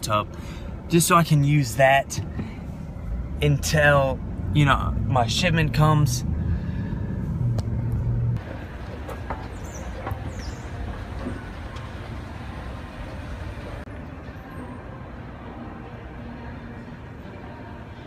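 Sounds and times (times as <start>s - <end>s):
car cabin drone: 2.2s - 13.9s
shopping mall noise: 8.4s - 18.0s.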